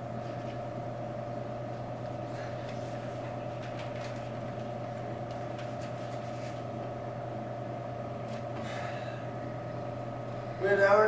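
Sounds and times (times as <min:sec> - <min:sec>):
two-tone machine hum: 0:00.0 - 0:11.0
paper rustling: 0:02.7 - 0:06.7.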